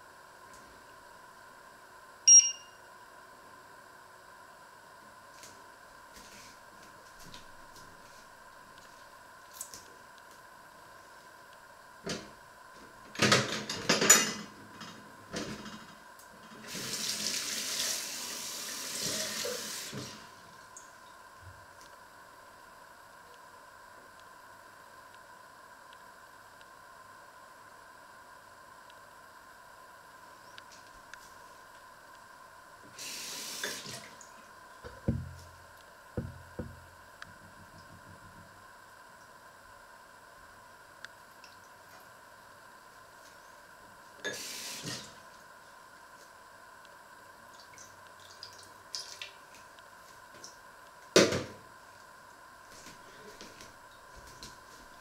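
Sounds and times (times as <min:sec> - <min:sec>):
running water hiss: 0:16.6 - 0:21.0, 0:32.8 - 0:35.6, 0:44.2 - 0:45.4.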